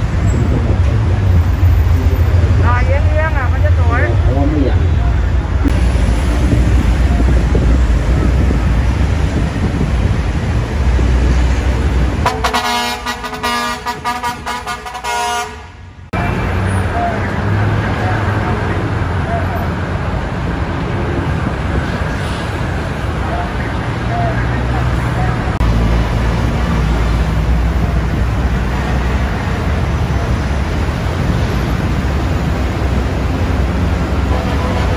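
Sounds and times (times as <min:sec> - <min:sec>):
heavy traffic rumble: 0:00.0 - 0:34.9
truck horn blast: 0:12.2 - 0:16.4.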